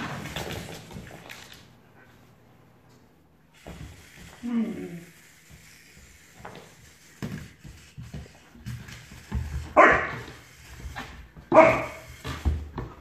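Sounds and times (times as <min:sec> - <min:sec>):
puppy barking: 0:09.8 - 0:10.2, 0:11.5 - 0:12.0.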